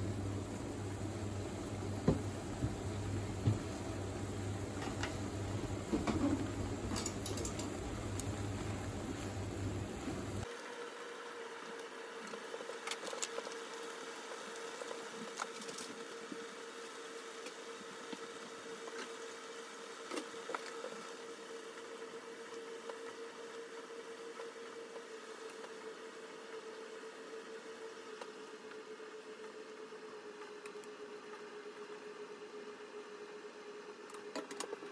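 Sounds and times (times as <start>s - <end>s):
water boiling and bubbling: 0.0s - 27.2s
constant hum: 0.0s - 34.9s.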